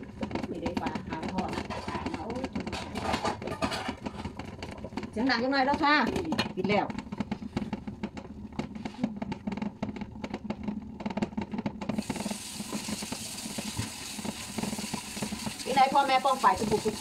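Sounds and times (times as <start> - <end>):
pot lid rattling on the boil: 0.0 - 17.0.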